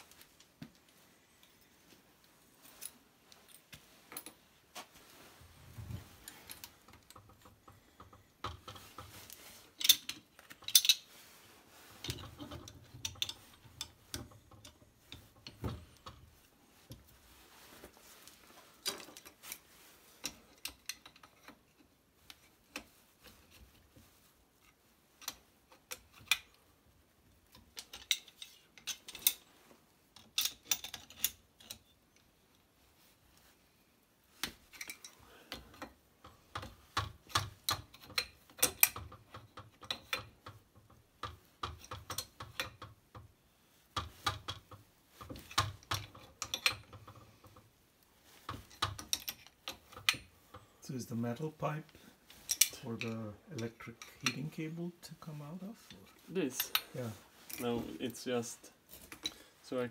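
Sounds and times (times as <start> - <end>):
metal fittings clinking: 6.2 - 11.1, 52.3 - 54.7.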